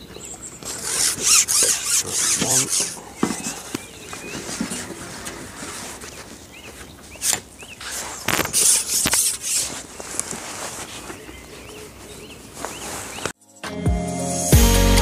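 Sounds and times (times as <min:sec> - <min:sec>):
small bird chirping: 0:00.0 - 0:04.9, 0:06.0 - 0:10.2
rustling and light knocks: 0:03.1 - 0:11.4.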